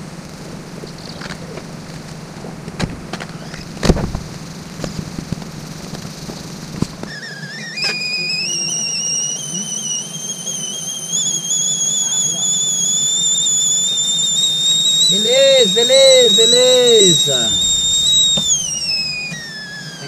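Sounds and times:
kettle whistling: 5.8 - 20.0.

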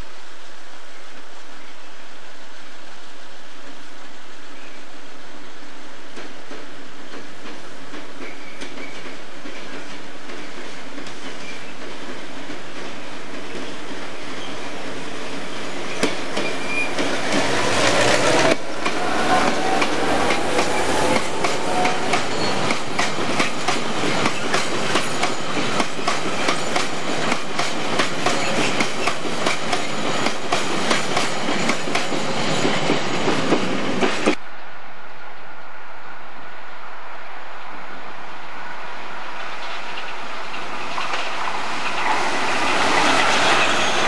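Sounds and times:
diesel locomotive passing: 0.0 - 44.0
train wheels clickety-clack: 6.1 - 15.0, 15.6 - 34.4, 39.4 - 44.0.

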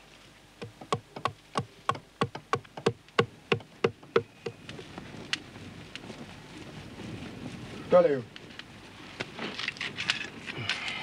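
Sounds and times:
adze chopping wood: 0.6 - 4.6.

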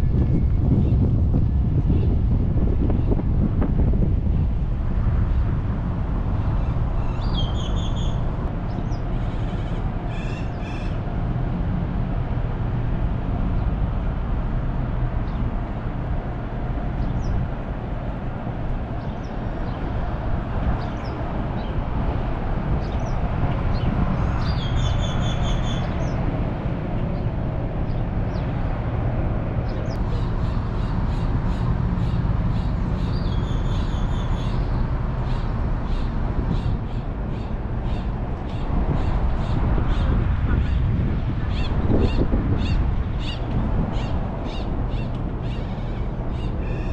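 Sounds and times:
repeated bird calls: 29.7 - 40.8, 41.5 - 46.9.

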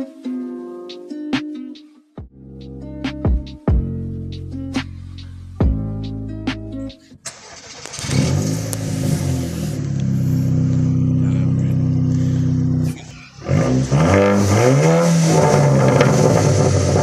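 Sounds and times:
car engine revving: 7.2 - 17.0.

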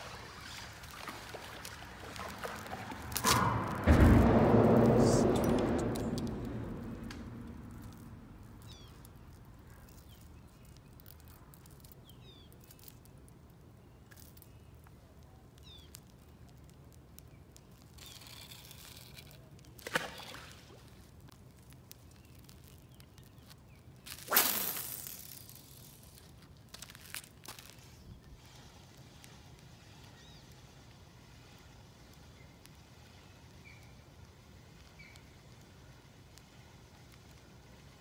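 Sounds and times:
fish splashing into water: 0.0 - 3.9
sharp knock: 3.2 - 8.6
faint bird chirps: 8.6 - 10.8.

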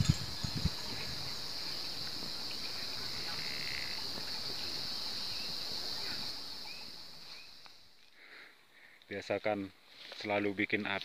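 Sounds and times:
high-pitched insect drone: 0.0 - 8.0
faint bird chirps: 0.0 - 8.2.

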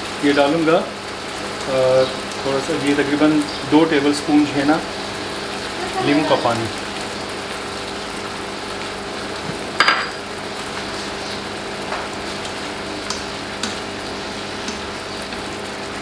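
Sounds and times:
prawns sizzling in a frying pan: 0.0 - 16.0
spatula tapping: 13.0 - 13.9, 14.6 - 15.4.

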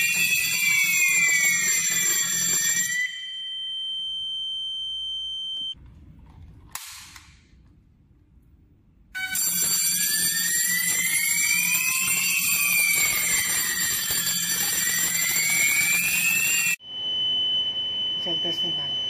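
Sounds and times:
fire alarm wailing: 0.0 - 5.8, 9.1 - 19.0
steady high beep: 0.0 - 5.8, 10.8 - 19.0.

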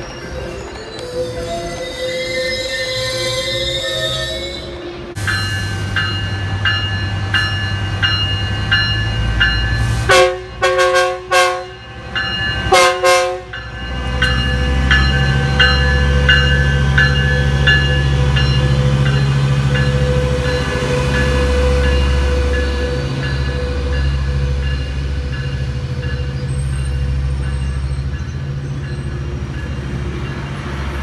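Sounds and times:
locomotive bell ringing: 0.0 - 31.0
train horn: 10.1 - 11.8, 12.7 - 13.5.

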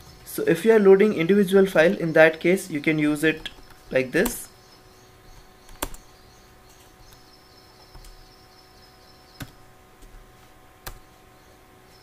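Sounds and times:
faint steady hum: 0.0 - 12.0
computer clicks: 5.7 - 6.1.

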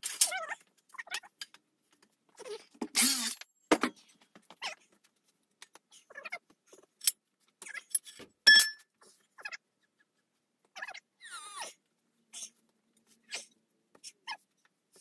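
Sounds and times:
ringing metal clank: 8.5 - 8.8.

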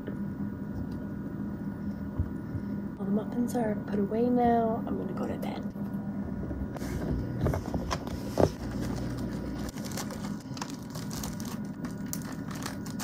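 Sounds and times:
plastic bag rustling: 6.8 - 13.0.

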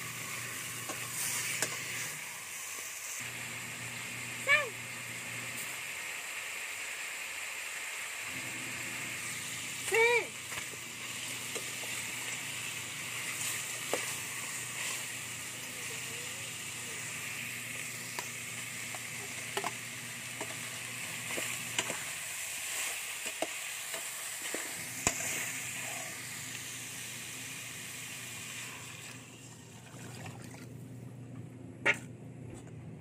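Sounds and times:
meat sizzling in a pot: 0.0 - 29.8
water being poured: 28.9 - 30.8.

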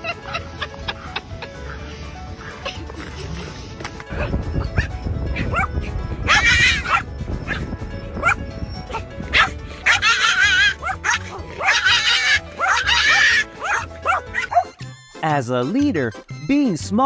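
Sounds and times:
background music: 0.0 - 17.0
dog barking and howling: 4.8 - 14.7.

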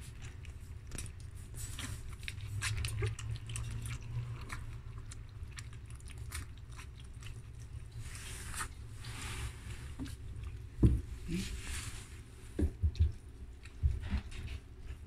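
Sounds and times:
low steady hum: 0.0 - 15.0
puppies lapping milk: 0.0 - 15.0.

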